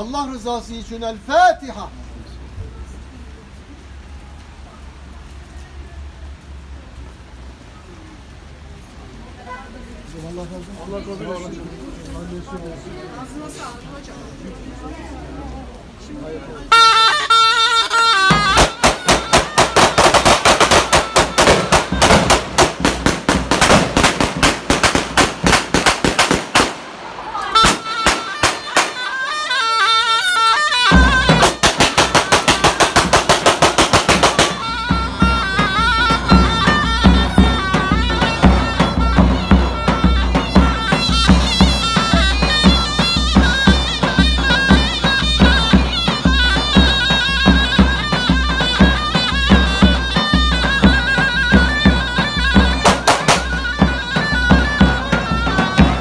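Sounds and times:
shrill zurna melody: 16.7 - 22.9, 27.2 - 56.0
booming drum beat: 17.8 - 29.6, 30.7 - 56.0.

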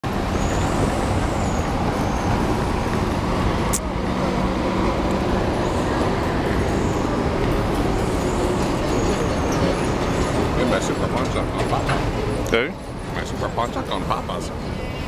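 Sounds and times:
street traffic passing: 0.0 - 15.0.

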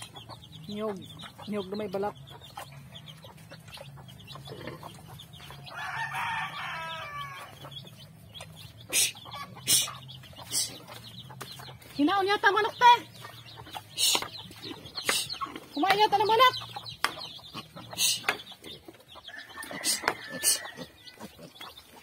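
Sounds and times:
rooster crowing: 5.7 - 7.5, 19.3 - 21.0.

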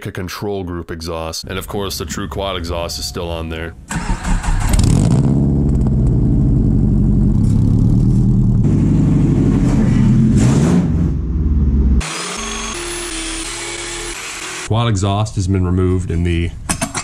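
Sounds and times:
car engine revving loudly: 4.5 - 14.7.

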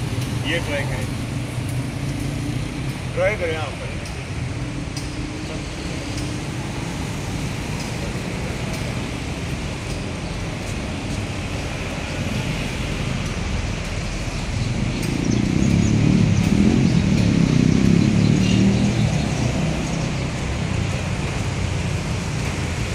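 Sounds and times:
street traffic rumble: 0.0 - 22.9
vehicle passing close by: 11.4 - 22.9.

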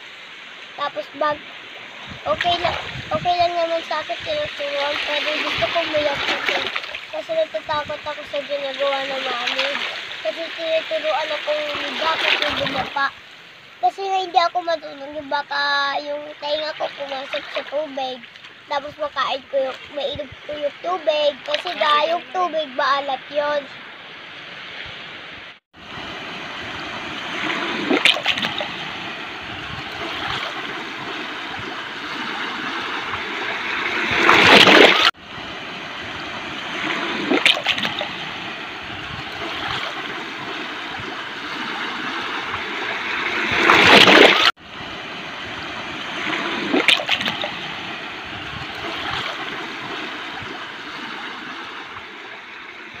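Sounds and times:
rushing water: 0.0 - 53.0.

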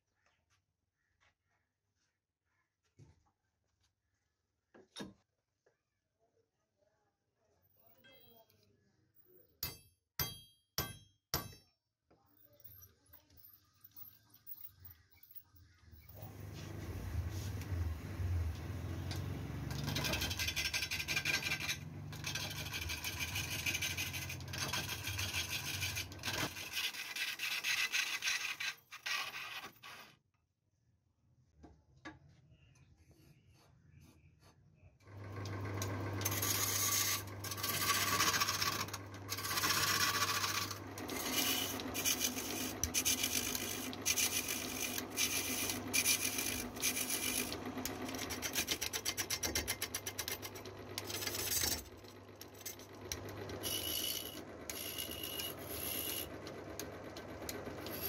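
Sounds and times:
tool scraping wooden drum shell: 18.7 - 30.0, 36.2 - 51.7, 53.6 - 56.3.

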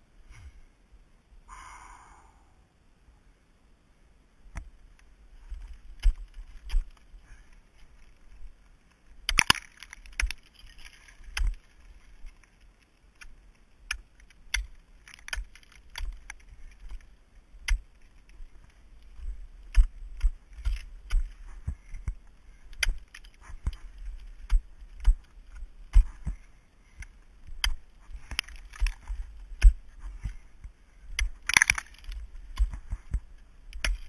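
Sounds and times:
ice crunching and chipping: 5.4 - 34.0
ice axe striking ice: 9.2 - 11.7, 31.2 - 32.8, 33.8 - 34.0.

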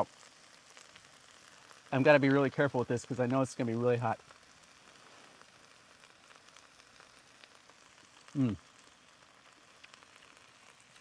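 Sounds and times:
food sizzling on a griddle: 0.0 - 11.0
short vocal sound: 8.4 - 8.6.

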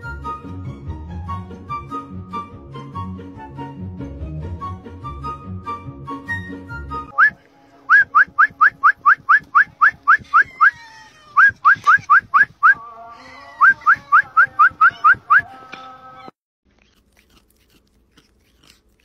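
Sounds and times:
faint background music: 0.0 - 9.7
rapid rising whistles: 7.1 - 10.8, 11.4 - 12.8.

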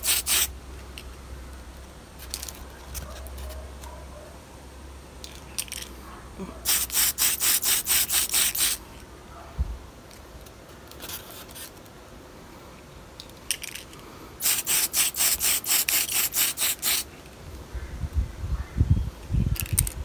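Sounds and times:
spray can hissing in bursts: 0.0 - 0.5, 6.6 - 8.8, 14.4 - 17.1.

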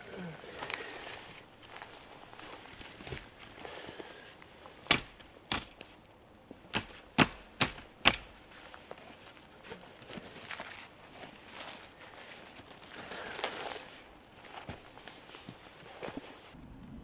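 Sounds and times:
hatchet chopping into log: 4.9 - 5.8, 6.7 - 8.3.

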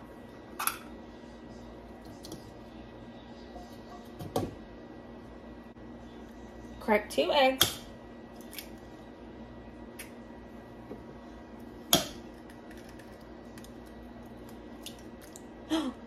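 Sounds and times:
egg shell cracking: 12.3 - 15.5.

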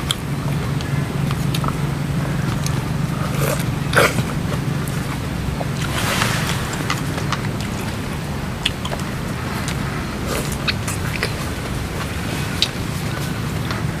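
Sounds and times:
wet chewing: 0.0 - 14.0
low hum: 0.3 - 12.0.

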